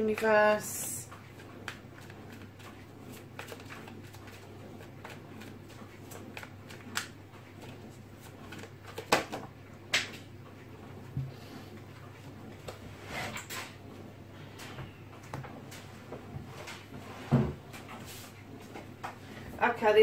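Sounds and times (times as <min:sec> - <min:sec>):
cards being shuffled: 0:01.3 - 0:09.4.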